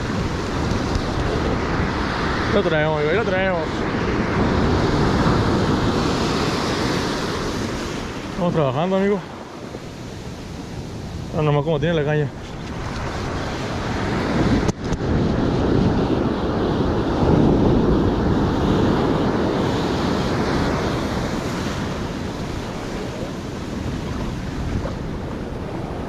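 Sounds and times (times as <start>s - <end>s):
ocean surf breaking: 0.0s - 26.0s
wind buffeting microphone: 0.0s - 26.0s.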